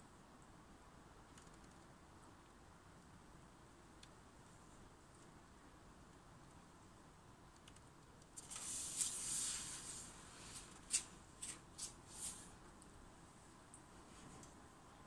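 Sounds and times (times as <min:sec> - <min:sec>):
faint rustling hiss: 0:00.0 - 0:15.0
short scraping rustles: 0:08.4 - 0:12.6.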